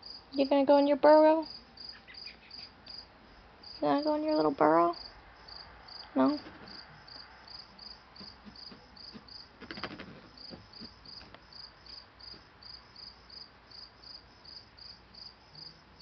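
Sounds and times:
cricket chirping: 0.0 - 16.0
rustling scratch: 8.2 - 11.4.

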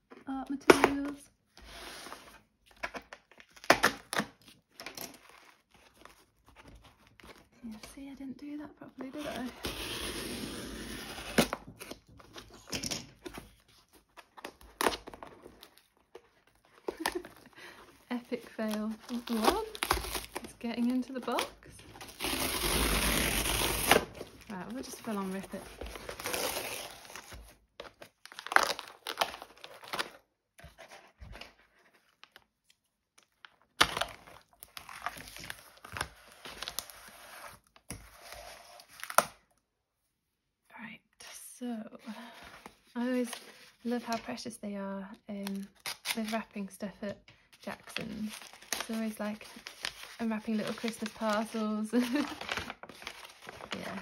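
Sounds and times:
cardboard box ripping: 19.0 - 20.5, 22.0 - 27.4.

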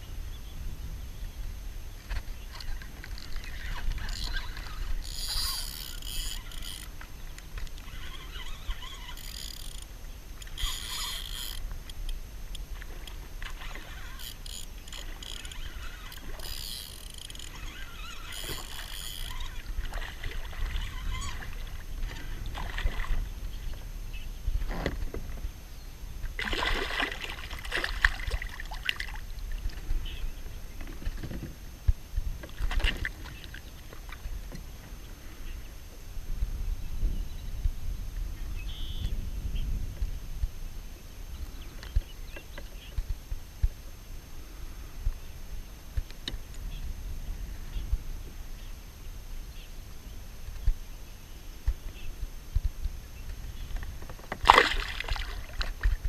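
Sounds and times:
wind rumbling on microphone: 0.0 - 56.0
water splashing: 15.0 - 23.3, 26.4 - 29.8, 54.3 - 56.0.

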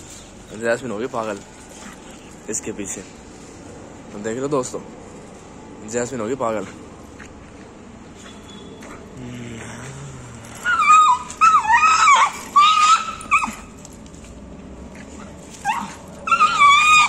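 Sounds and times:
dog whining and yipping: 10.4 - 13.9, 15.0 - 17.0.

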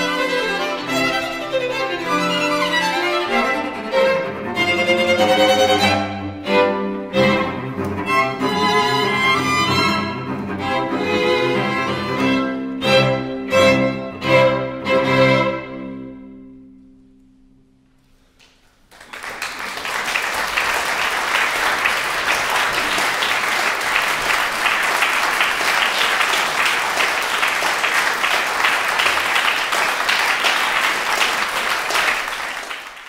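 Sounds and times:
audience applause: 18.7 - 33.0.

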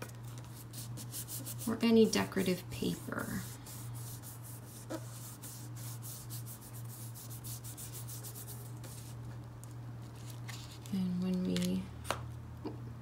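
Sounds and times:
hands rubbing paper: 0.3 - 1.8, 2.8 - 9.4.

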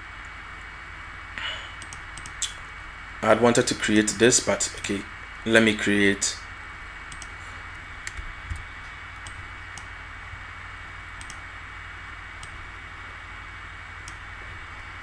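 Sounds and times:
low electrical hum: 0.0 - 15.0
microphone hiss: 0.0 - 15.0
computer mouse clicks: 1.8 - 2.6, 7.1 - 7.4, 8.0 - 9.9, 11.2 - 11.4, 12.4 - 12.6.

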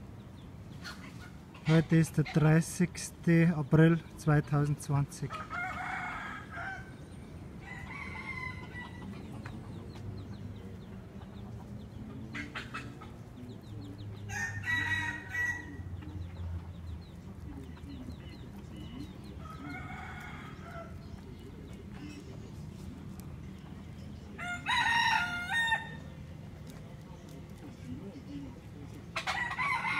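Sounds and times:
birds calling: 0.0 - 29.9
low background hum: 0.0 - 29.9.

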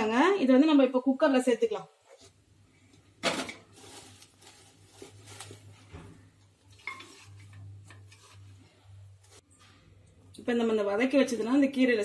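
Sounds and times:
leaves rustling: 3.7 - 5.8.

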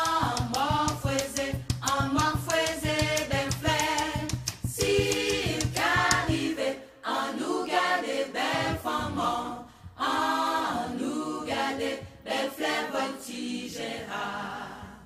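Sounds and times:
person singing: 0.0 - 6.5.

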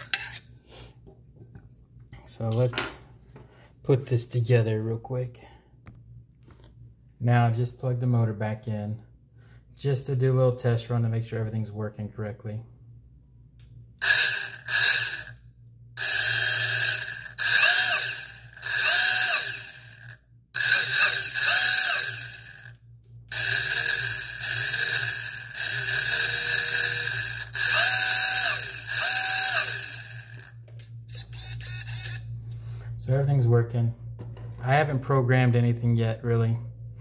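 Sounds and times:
electric motor high whine: 14.0 - 15.4, 16.0 - 32.3.

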